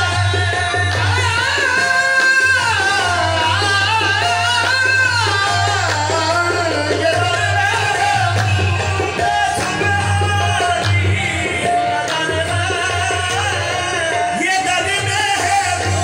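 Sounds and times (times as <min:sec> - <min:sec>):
harmonium: 0:00.0 - 0:16.0
men singing: 0:00.0 - 0:16.0
tabla: 0:00.0 - 0:16.0.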